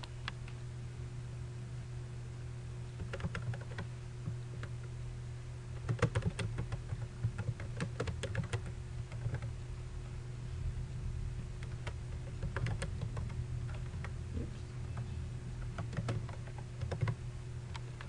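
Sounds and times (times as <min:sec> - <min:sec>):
low steady hum: 0:00.0 - 0:18.0
keyboard typing: 0:03.0 - 0:04.7, 0:05.8 - 0:09.5, 0:11.6 - 0:14.2, 0:14.9 - 0:17.9.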